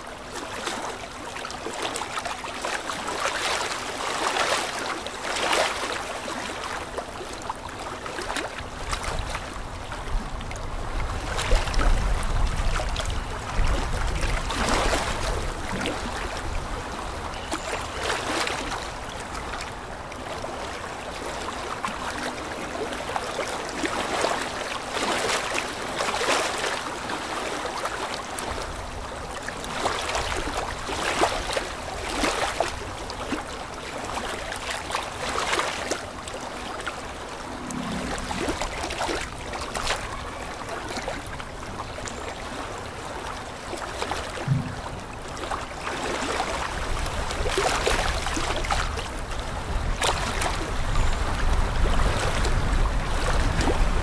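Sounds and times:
water splashing and trickling: 0:00.0 - 0:54.0
aquarium bubbling: 0:36.2 - 0:40.3, 0:44.3 - 0:46.1.

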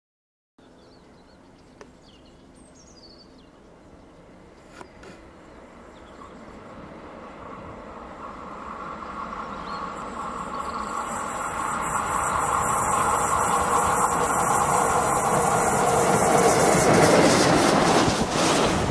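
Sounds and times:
birds chirping: 0:00.6 - 0:06.7, 0:08.8 - 0:11.5
steam train hiss: 0:05.2 - 0:18.9
steam train rumble: 0:05.2 - 0:18.9.

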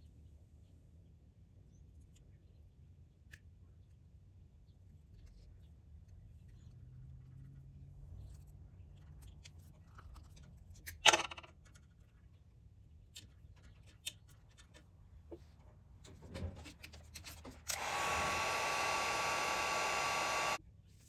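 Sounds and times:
small power tool whirring: 0:17.6 - 0:20.6.

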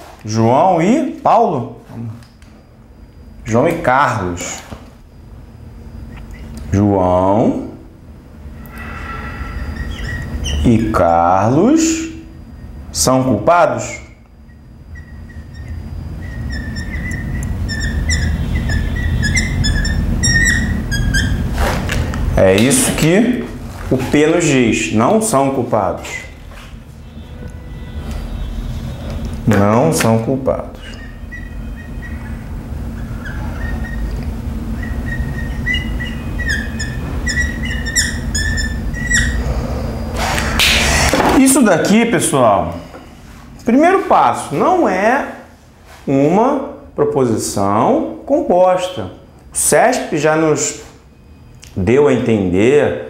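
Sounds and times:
bird chirping: 0:09.0 - 0:10.9, 0:13.9 - 0:21.4, 0:30.8 - 0:39.5
pen squeaking on board: 0:09.4 - 0:10.9, 0:14.5 - 0:21.9, 0:30.8 - 0:39.4.

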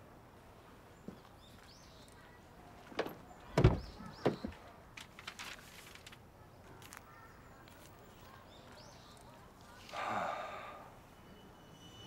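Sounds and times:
brief rustle: 0:05.0 - 0:06.2
faint bird chirps: 0:06.4 - 0:12.0.

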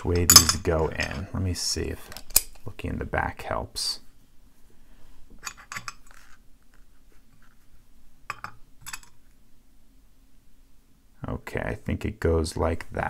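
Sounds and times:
padlock parts clicking: 0:02.1 - 0:02.6.

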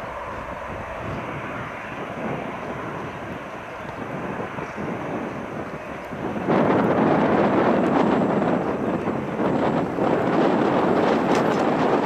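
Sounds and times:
distant jet engine rush: 0:00.0 - 0:12.0.

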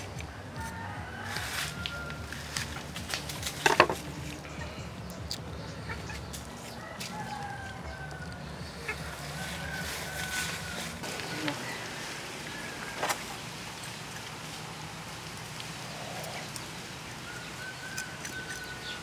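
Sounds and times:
chickens clucking: 0:00.1 - 0:15.0.

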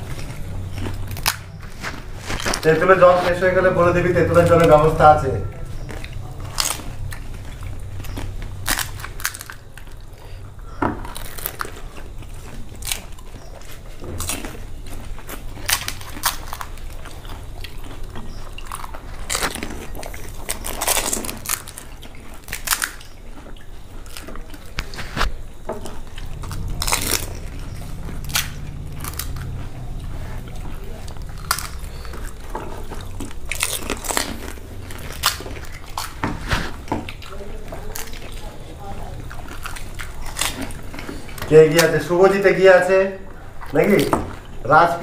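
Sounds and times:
crisp shells crunching: 0:00.0 - 0:45.0
people chewing: 0:00.0 - 0:45.0.

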